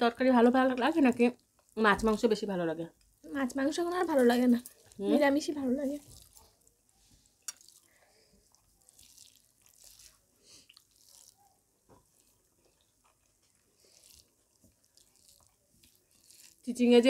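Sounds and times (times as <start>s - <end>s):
quiet chewing: 4.1s - 16.8s.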